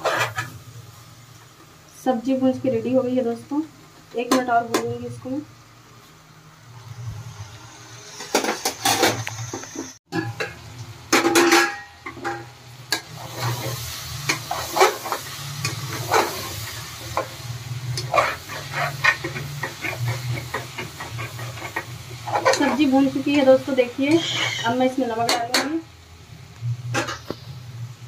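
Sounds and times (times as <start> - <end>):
metal utensil scraping a pot: 0.0 - 0.5, 11.3 - 16.6, 17.9 - 23.0, 24.1 - 25.7, 26.9 - 27.4
vegetables sizzling: 0.0 - 28.0.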